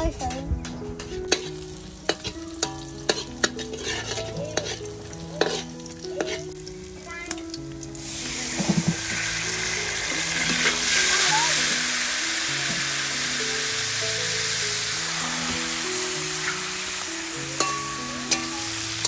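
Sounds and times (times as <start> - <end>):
metal utensils clinking on pot: 1.0 - 6.6, 17.6 - 18.7
oil sizzling with garlic frying: 1.0 - 19.0.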